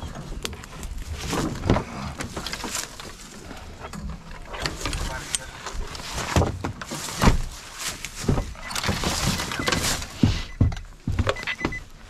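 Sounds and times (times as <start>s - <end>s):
rustling: 0.0s - 10.6s
knocks and thuds: 8.2s - 11.9s.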